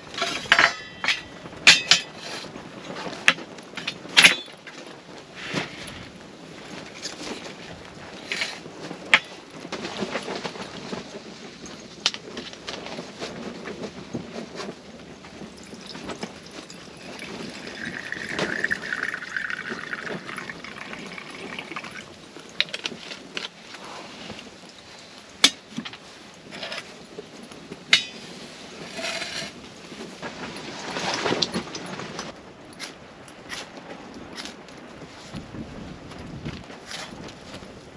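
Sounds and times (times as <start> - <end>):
camp gear clicks and knocks: 6.7 - 34.7
liquid pouring from bottle: 15.6 - 22.1.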